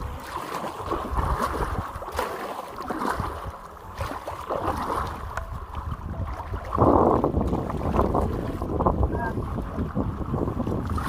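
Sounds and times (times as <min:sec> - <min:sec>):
paddle strokes splashing: 0:00.0 - 0:11.0
rushing water: 0:00.0 - 0:11.0.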